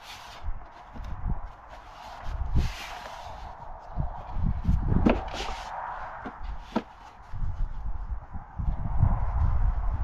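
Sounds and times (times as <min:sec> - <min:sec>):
plastic scraping rustle: 0:00.0 - 0:03.7.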